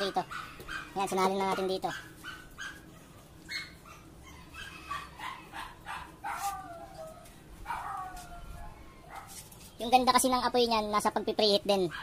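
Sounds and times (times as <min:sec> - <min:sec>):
dog whining and yipping: 0:01.6 - 0:09.3.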